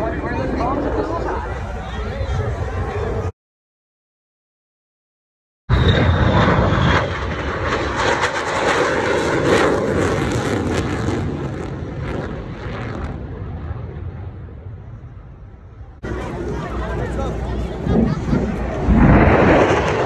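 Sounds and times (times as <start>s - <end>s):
falling jet whine: 5.7s - 14.2s, 17.9s - 20.0s
jet passing low overhead: 5.7s - 20.0s.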